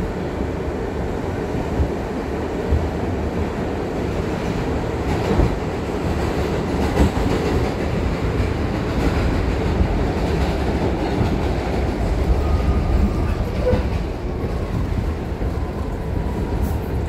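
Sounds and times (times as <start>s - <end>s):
subway wheels rumbling on track: 0.0s - 17.0s.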